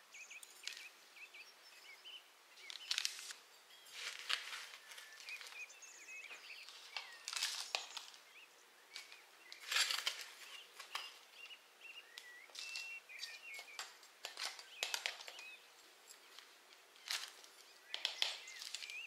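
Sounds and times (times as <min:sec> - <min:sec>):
small birds chirping: 0:00.0 - 0:19.0
scoop scraping potting soil: 0:02.7 - 0:05.8, 0:09.6 - 0:11.1.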